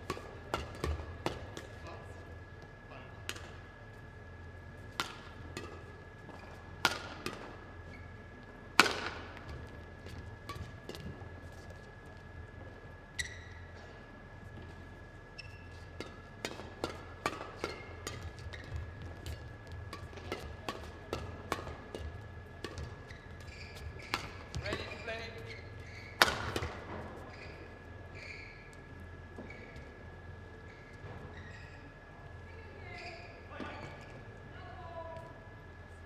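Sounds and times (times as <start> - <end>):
rackets hitting shuttlecock: 0.0 - 1.7, 4.9 - 7.6, 8.7 - 9.7, 16.0 - 25.3, 26.0 - 27.1.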